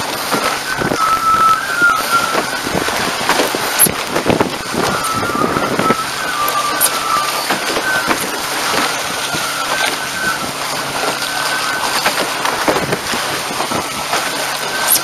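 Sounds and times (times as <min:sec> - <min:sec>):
spray hissing off hull: 0:00.0 - 0:15.0
water and wind rushing: 0:00.0 - 0:15.0
wavering high whistle: 0:00.6 - 0:03.0, 0:04.6 - 0:12.4, 0:14.6 - 0:15.0.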